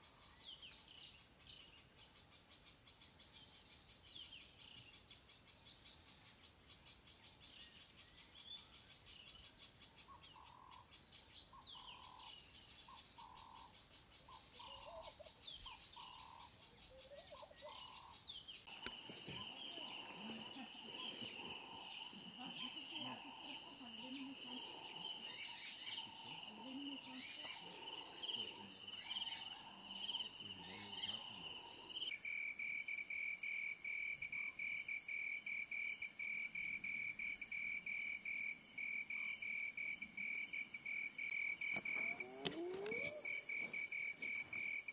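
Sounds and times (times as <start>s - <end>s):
birds chirping: 0.0s - 32.1s, 41.2s - 44.9s
insects chorus: 0.0s - 44.9s
cricket trilling: 13.2s - 44.9s.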